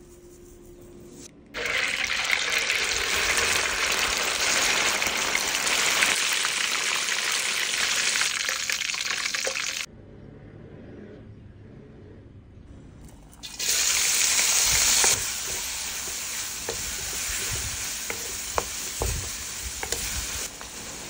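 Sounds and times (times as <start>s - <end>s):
fish deep-frying in oil: 1.6s - 9.9s, 13.4s - 21.0s.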